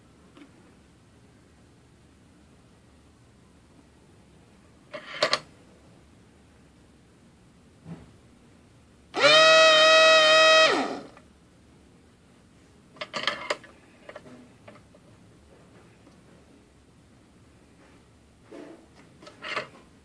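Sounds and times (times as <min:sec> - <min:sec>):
vacuum pump buzzing: 0:09.1 - 0:11.2.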